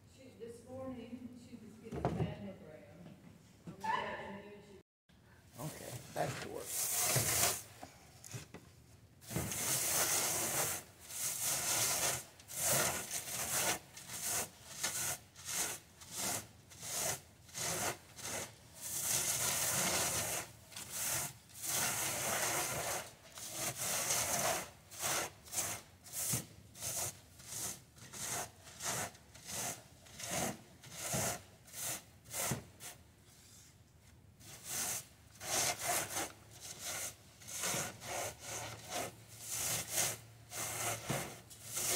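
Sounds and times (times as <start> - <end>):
seed pods rubbed on wire mesh: 5.6 - 7.8, 9.5 - 33.0, 34.4 - 41.9.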